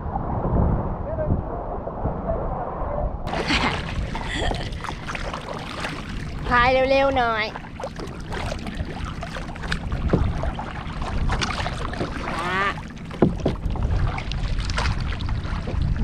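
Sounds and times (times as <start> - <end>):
wind on microphone: 0.0 - 16.0
paddles splashing in water: 3.3 - 16.0.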